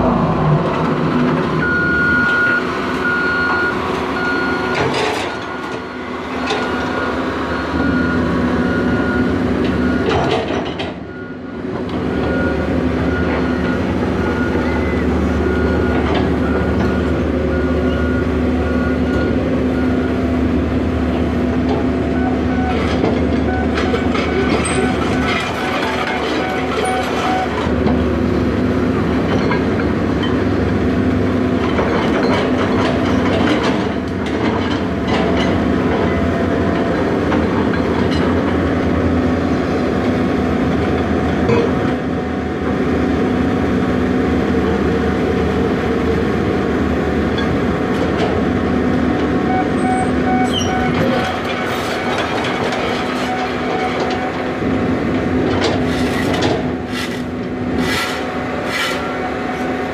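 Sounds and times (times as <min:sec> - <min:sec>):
excavator diesel engine running: 0:00.0 - 0:59.9
backup alarm beeping: 0:01.6 - 0:10.1.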